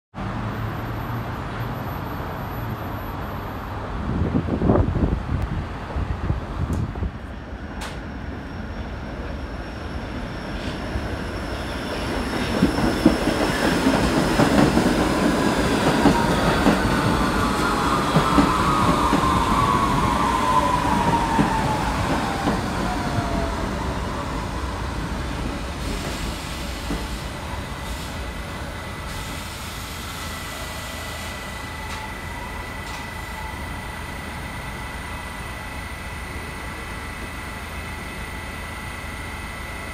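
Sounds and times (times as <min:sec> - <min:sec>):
subway train wheels rumbling: 0:00.2 - 0:39.9
high squeal sliding down: 0:15.4 - 0:28.3.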